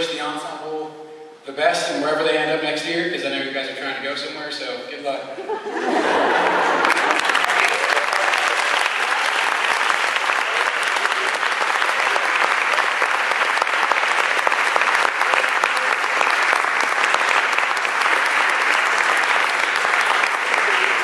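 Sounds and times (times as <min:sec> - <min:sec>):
audience applauding: 0:06.0 - 0:21.0.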